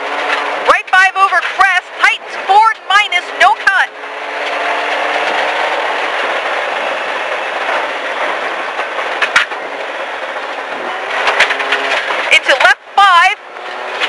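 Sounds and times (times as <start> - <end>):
car engine: 0.0 - 14.0
tyre and gravel noise: 0.0 - 14.0
sharp crack: 8.7 - 9.6.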